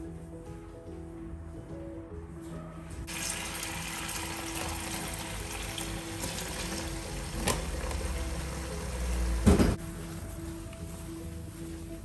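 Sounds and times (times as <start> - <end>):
background music: 0.0 - 12.0
water running into sink: 3.1 - 9.8.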